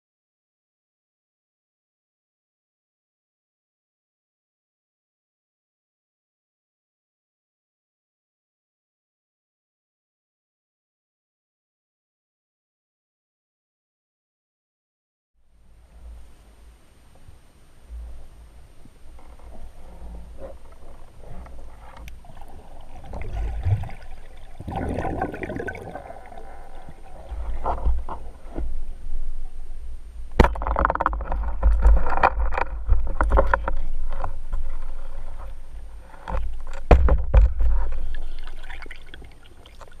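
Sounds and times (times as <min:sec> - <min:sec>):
water rushing and gurgling: 0:19.6 - 0:28.5, 0:37.8 - 0:40.0.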